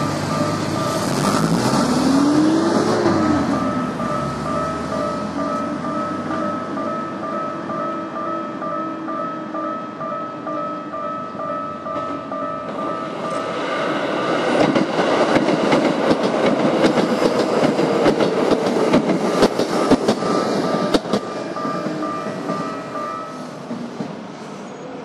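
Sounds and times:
crossing bell two-tone clang: 0.0s - 13.5s, 19.6s - 23.6s
train wheels clacking over joints: 14.3s - 23.0s.

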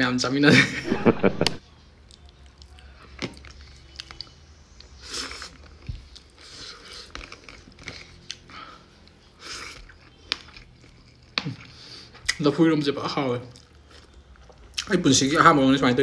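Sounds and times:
person chewing food: 2.0s - 12.4s, 13.5s - 14.9s.

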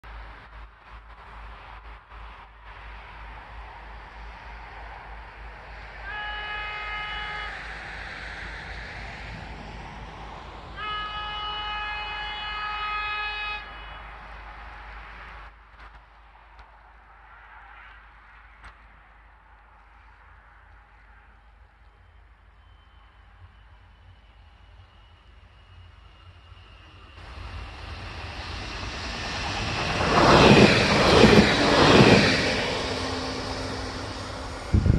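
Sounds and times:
train running noise: 0.0s - 34.9s
train horn: 5.9s - 7.9s, 10.7s - 14.3s.

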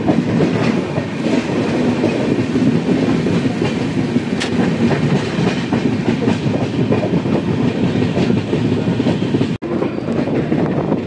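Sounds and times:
train rumbling along track: 0.0s - 11.0s.

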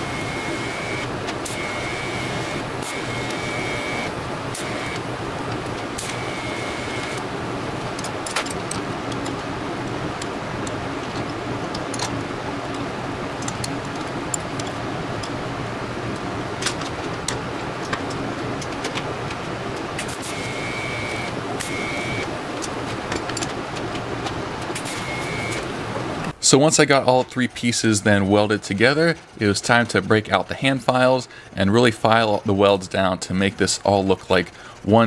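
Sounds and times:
welding arc high tone: 0.0s - 5.1s, 5.8s - 7.2s, 20.0s - 22.3s, 24.8s - 25.8s
welding machine hum: 0.0s - 12.8s, 16.8s - 26.3s.

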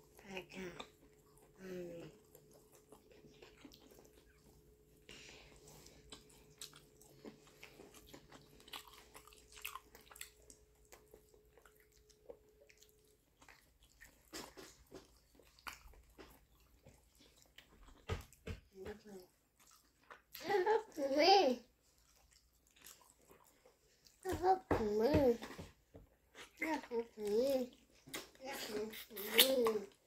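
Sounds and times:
faint steady hum: 0.0s - 30.0s
wet chewing and mouth clicks: 0.5s - 20.4s, 21.8s - 24.4s.

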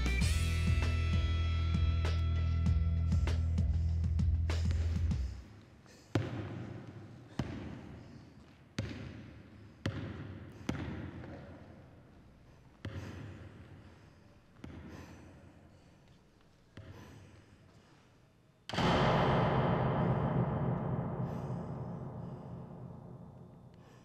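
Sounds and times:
basketball bouncing on wooden floor: 6.2s - 7.8s, 8.8s - 11.7s.

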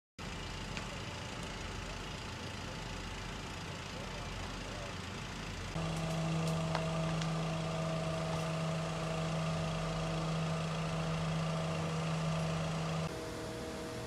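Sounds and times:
fire engines running: 0.2s - 14.0s
steady pitched drone: 5.6s - 14.0s.

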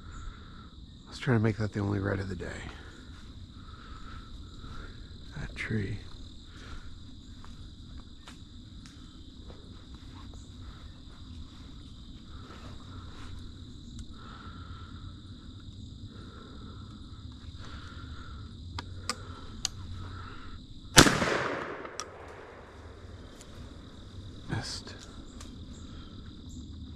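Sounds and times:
crickets chirping: 0.0s - 26.9s
shotgun shot: 21.0s - 22.7s.

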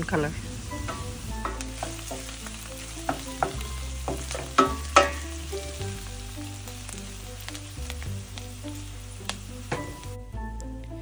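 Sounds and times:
onions sizzling in hot oil: 0.0s - 11.0s
wooden spoon scraping a pan: 0.4s - 6.0s.

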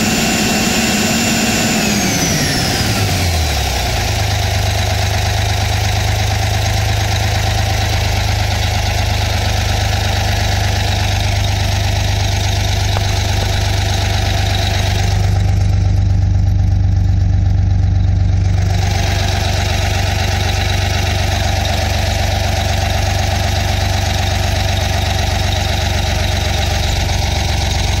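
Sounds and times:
diesel engine idling: 0.0s - 28.0s.

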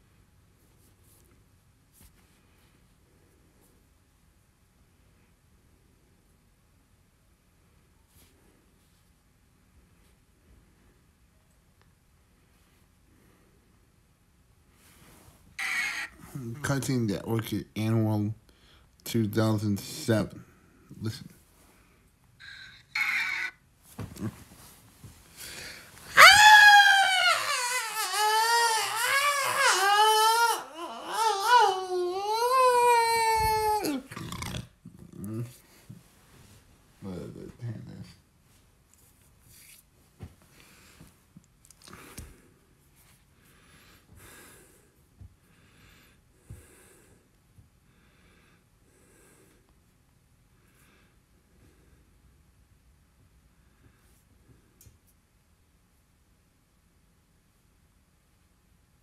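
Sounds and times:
high-pitched wailing cry: 15.6s - 16.5s, 22.4s - 23.6s, 26.1s - 34.2s
faint breaths: 18.4s - 19.0s, 24.2s - 26.2s, 40.4s - 52.3s.

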